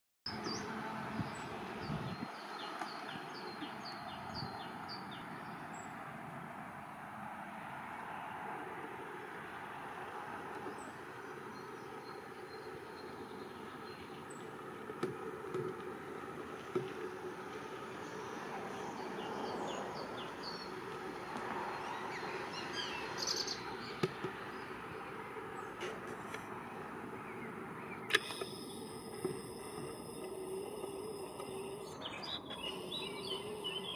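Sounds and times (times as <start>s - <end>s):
small birds chirping: 0.3s - 6.0s, 10.6s - 14.8s, 17.8s - 25.8s, 26.6s - 33.9s
outdoor background hiss: 0.3s - 33.9s
bird trill: 27.4s - 33.9s.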